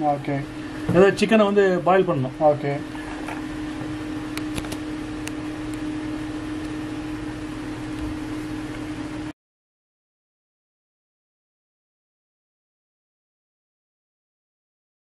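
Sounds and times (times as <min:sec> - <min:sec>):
steady mechanical hum: 0:00.0 - 0:09.4.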